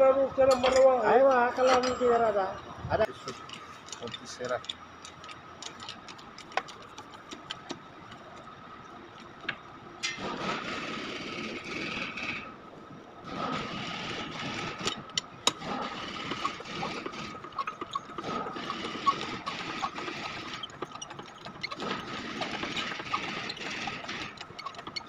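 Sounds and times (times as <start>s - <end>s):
machine running: 13.2s - 25.0s.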